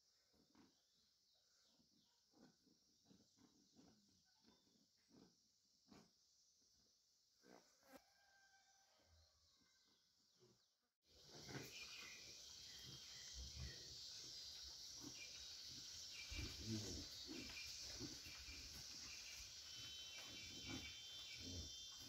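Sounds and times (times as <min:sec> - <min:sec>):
insect hiss: 0:11.1 - 0:22.0
bird chirps: 0:11.2 - 0:22.0
soft low animal sounds: 0:11.2 - 0:22.0.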